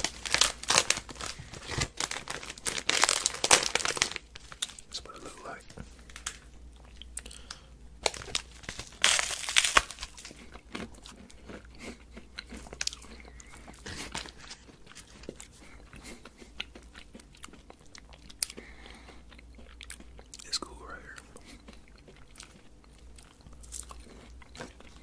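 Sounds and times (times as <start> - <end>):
crunchy biting and chewing: 6.7 - 25.0.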